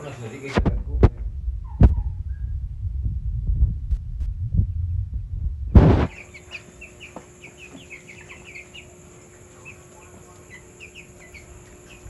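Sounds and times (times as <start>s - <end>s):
chicks peeping: 0.0s - 2.6s, 5.8s - 12.0s
sharp thump: 0.5s - 2.3s, 5.7s - 6.1s
loud low rumble: 0.5s - 6.1s.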